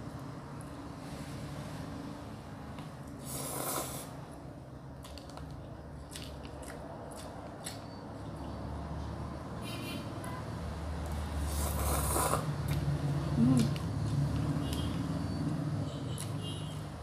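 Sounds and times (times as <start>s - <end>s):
slurping noodles: 3.2s - 4.2s, 11.5s - 12.6s
chewing with mouth clicks: 5.0s - 8.6s, 11.0s - 15.6s, 16.2s - 17.0s.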